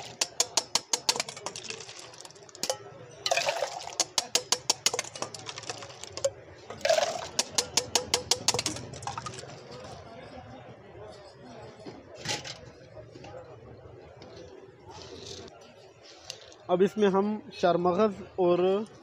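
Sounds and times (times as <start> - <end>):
ice clinking in steel: 0.0 - 9.8
liquid splashing when poured: 3.3 - 7.4.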